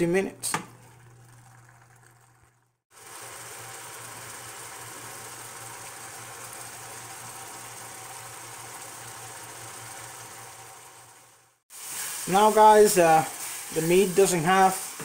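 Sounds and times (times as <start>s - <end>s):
meat sizzling in a skillet: 2.9s - 15.0s.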